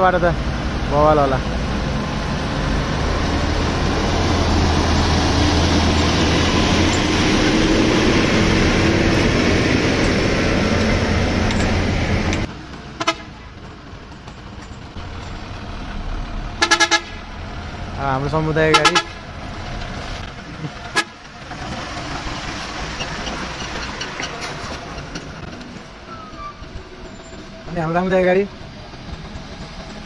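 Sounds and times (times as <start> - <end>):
truck driving on gravel: 0.0 - 30.0
horn toot: 16.6 - 17.2, 18.7 - 19.2.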